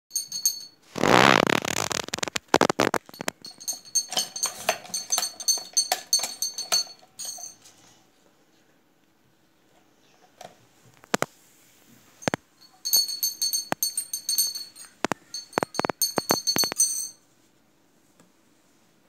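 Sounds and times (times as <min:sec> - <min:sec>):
metallic clicks and clatters: 0:00.1 - 0:07.7, 0:12.2 - 0:17.2.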